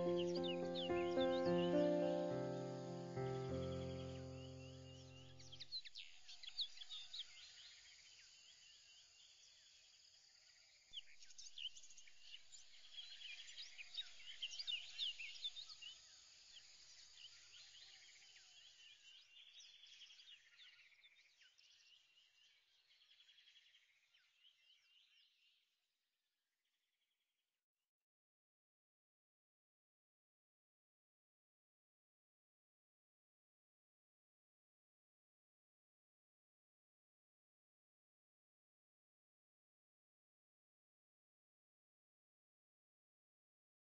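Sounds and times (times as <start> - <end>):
high chirps and trills: 0.0 - 4.6.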